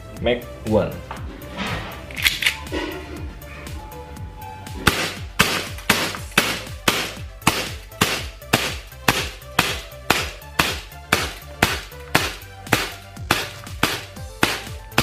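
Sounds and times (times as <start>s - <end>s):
airsoft pistol shots cracking: 4.9s - 15.0s.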